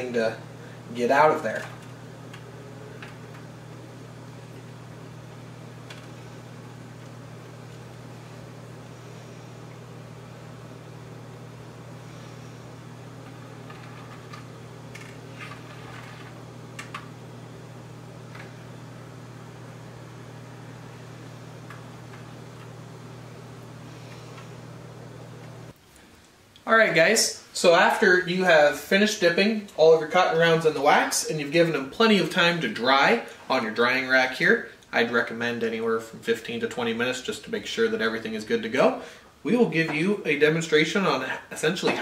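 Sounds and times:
steady low hum: 0.0 - 25.8.

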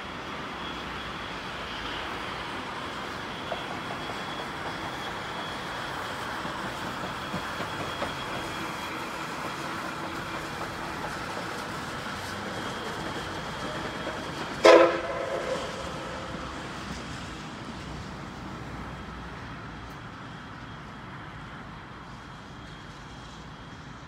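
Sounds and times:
locomotive running noise: 0.0 - 24.0
steam whistle blast: 12.9 - 17.2.

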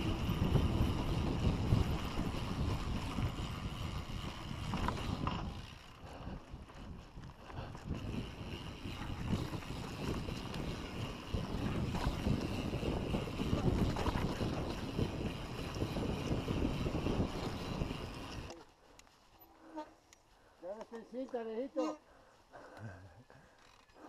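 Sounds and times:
wind buffeting microphone: 0.0 - 18.6
bike tyres rolling on dirt: 0.0 - 19.4.

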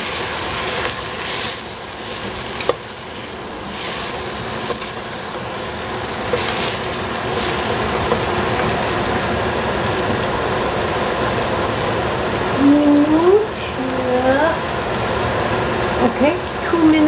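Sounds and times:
wooden spatula stirring and scraping: 0.0 - 10.4
vegetables sizzling in oil: 0.0 - 17.0.

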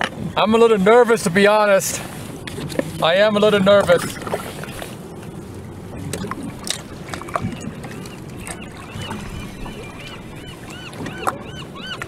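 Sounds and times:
water sloshing and gurgling: 0.0 - 12.0.

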